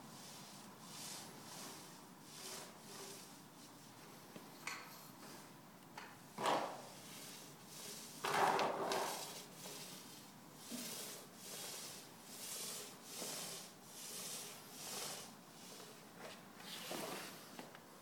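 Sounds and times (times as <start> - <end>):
roller swishing over wooden floor: 0.2 - 4.2, 6.3 - 17.7
rustling scuff: 8.2 - 9.9.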